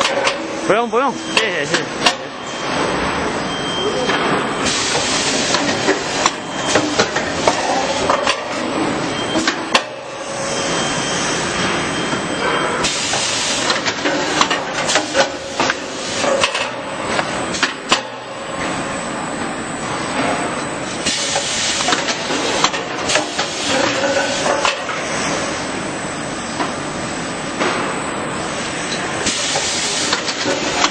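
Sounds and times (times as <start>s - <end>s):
steady machine noise: 0.0s - 30.9s.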